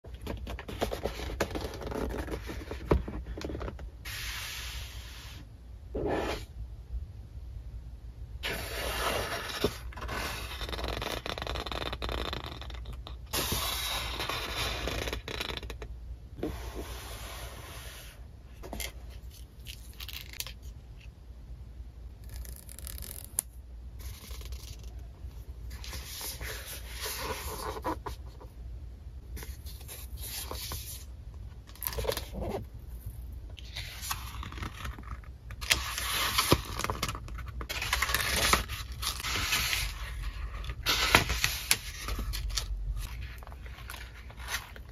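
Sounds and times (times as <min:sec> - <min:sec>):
paper rustling and sliding: 0:37.6 - 0:44.9.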